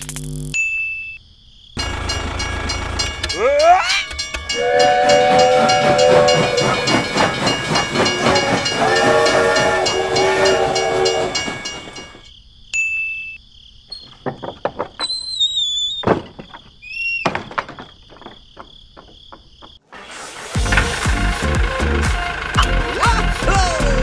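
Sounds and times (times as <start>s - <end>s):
high insect-like buzz: 0.0s - 0.6s
clattering rail noise: 1.8s - 12.3s
train horn: 4.5s - 12.1s.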